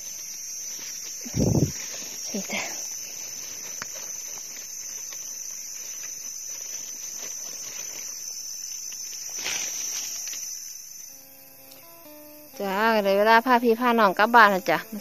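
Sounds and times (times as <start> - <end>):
knife scraping soil and leaves: 0.0 - 10.8
leaf litter rustling: 0.0 - 11.1
insect high drone: 0.0 - 15.0.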